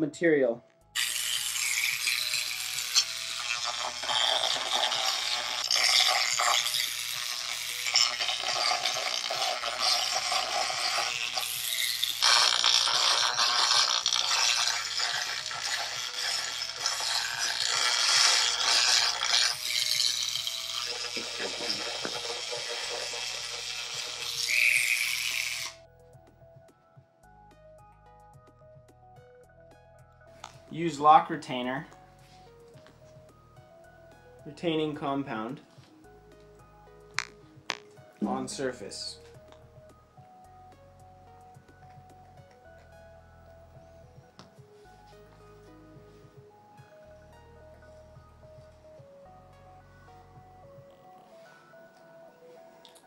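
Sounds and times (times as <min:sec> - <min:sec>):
rotary tool grinding metal: 0:01.0 - 0:25.8, 0:37.2 - 0:37.9.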